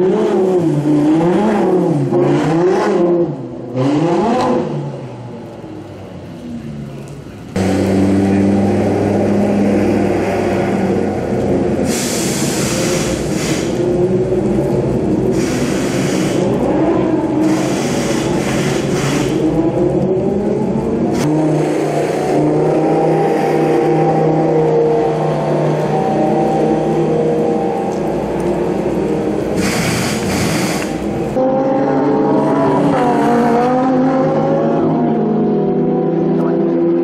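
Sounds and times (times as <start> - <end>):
race car engines: 0.0 - 37.0
tyres spraying water hiss: 11.8 - 13.8, 15.3 - 16.5, 17.4 - 19.5, 28.7 - 31.3.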